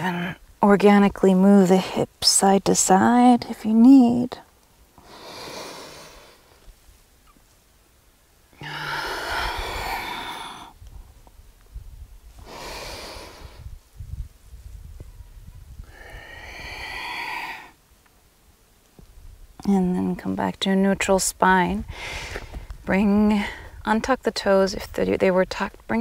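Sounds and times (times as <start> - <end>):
woman breathing deeply: 5.0 - 6.6, 8.6 - 11.1, 12.4 - 13.8, 15.8 - 17.8, 21.9 - 22.7.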